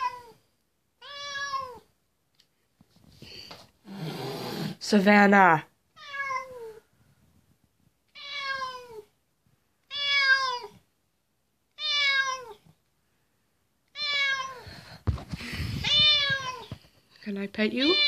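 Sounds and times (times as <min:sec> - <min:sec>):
cat meowing: 0:00.0 - 0:00.4, 0:01.0 - 0:01.9, 0:06.0 - 0:06.9, 0:08.1 - 0:09.1, 0:09.8 - 0:10.8, 0:11.7 - 0:12.7, 0:13.9 - 0:14.8, 0:15.8 - 0:16.8.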